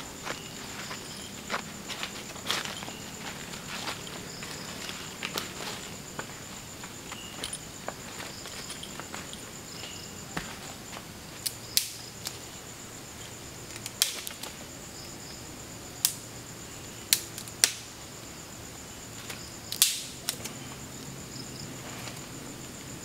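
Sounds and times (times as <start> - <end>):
night insects chirring: 0.0 - 23.0
dry twigs snapping: 11.4 - 12.4, 13.7 - 14.6, 19.3 - 20.5.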